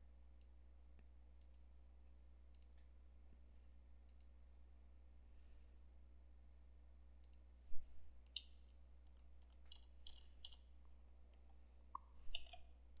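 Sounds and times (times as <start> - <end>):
low steady hum: 0.0 - 13.0
computer mouse clicks: 2.5 - 2.9, 4.1 - 4.3, 7.2 - 7.5, 8.3 - 10.7, 12.0 - 12.7
keystrokes: 8.3 - 10.6, 12.3 - 12.6.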